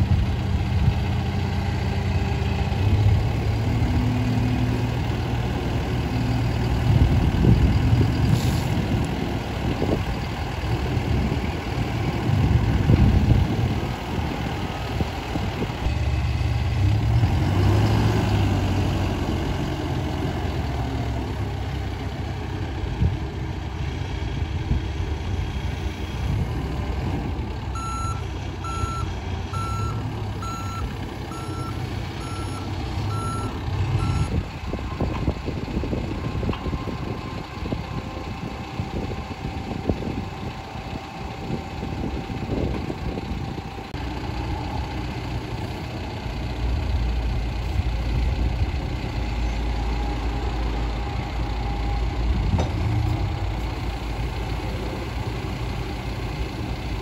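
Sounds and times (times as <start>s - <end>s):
diesel engine running: 0.0s - 57.0s
reversing alarm beeping: 27.8s - 34.4s.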